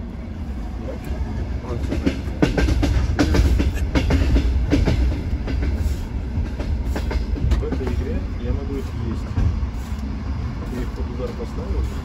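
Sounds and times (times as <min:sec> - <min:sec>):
train rumble inside carriage: 0:00.0 - 0:12.0
wheels clacking over rail joints: 0:01.0 - 0:10.0.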